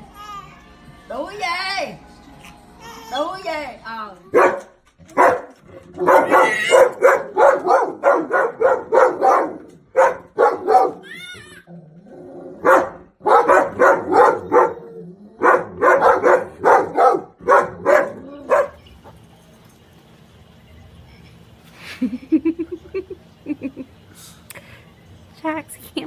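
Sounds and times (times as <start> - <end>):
dog barking: 4.3 - 11.0, 12.6 - 18.8.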